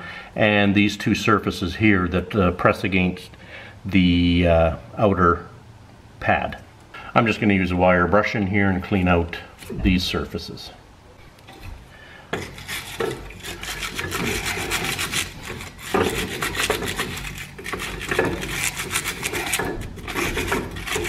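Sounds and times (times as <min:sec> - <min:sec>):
wire brush scrubbing metal: 0:11.4 - 0:21.0.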